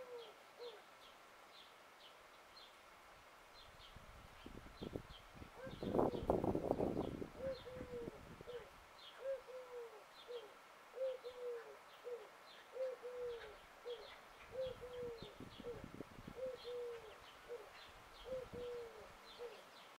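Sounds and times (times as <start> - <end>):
dove cooing: 0.0 - 0.8, 5.6 - 6.8, 7.4 - 19.7
small birds chirping: 3.5 - 20.0.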